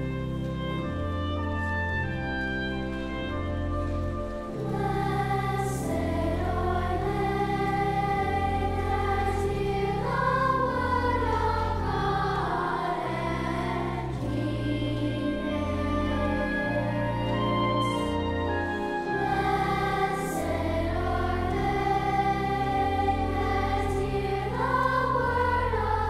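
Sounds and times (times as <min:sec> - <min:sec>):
slow music with low notes: 0:00.0 - 0:26.0
choir singing: 0:03.9 - 0:26.0.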